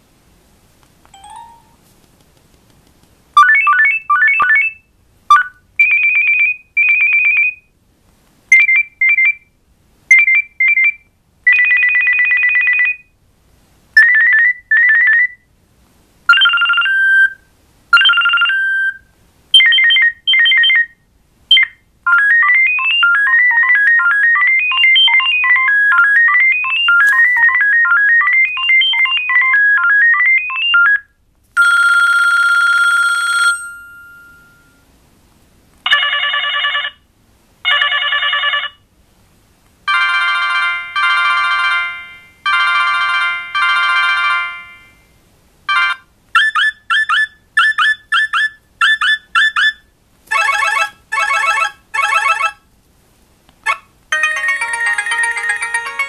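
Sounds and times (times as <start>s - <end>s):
held electronic tone: 1.2s - 1.8s
phone ringtones beeping: 1.2s - 1.8s, 16.3s - 17.3s, 18.0s - 18.9s, 22.1s - 31.0s, 31.6s - 34.8s, 39.9s - 45.1s, 45.7s - 46.0s, 50.3s - 52.6s, 54.1s - 56.0s.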